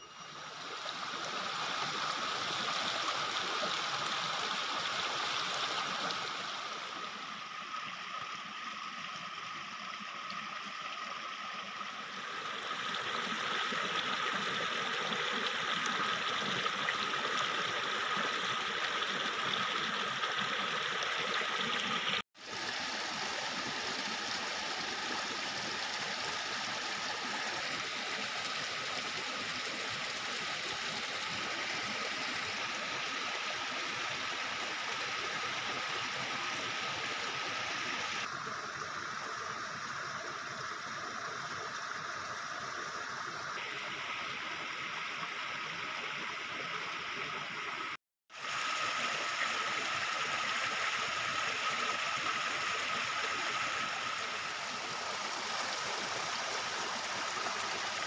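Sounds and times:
stream splashing over rocks: 0:00.4 - 0:58.0.

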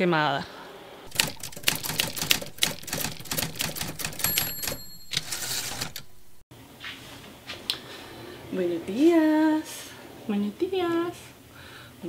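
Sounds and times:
typewriter bell ding: 0:01.1 - 0:06.4
typewriter keys clacking: 0:01.1 - 0:06.4.

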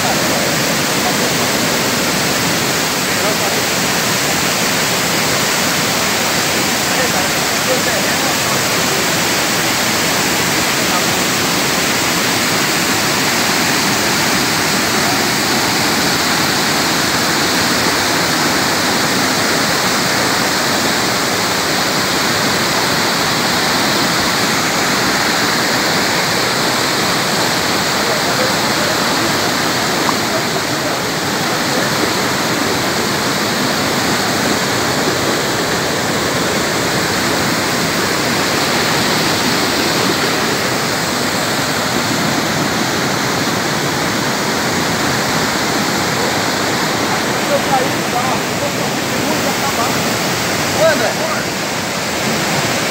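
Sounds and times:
waterfall rushing: 0:00.0 - 0:52.9.

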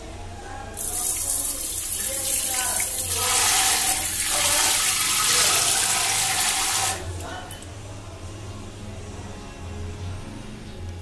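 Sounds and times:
water spraying into toilet bowl: 0:00.8 - 0:07.0.

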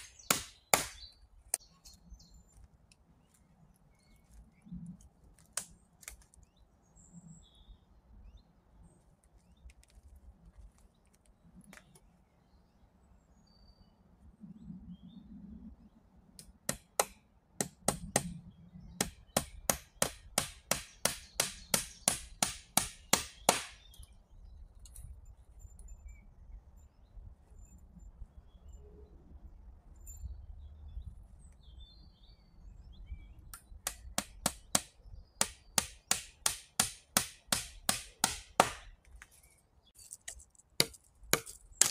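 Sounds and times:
hand tool striking wood: 0:00.0 - 0:01.6, 0:16.4 - 0:18.4, 0:19.0 - 0:23.8, 0:33.8 - 0:39.0, 0:40.8 - 0:41.9
faint bird chirps: 0:23.8 - 0:33.8.

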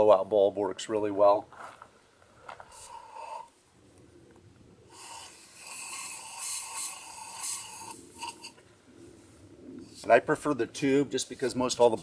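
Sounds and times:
air puffs through blow tube: 0:04.9 - 0:10.1.

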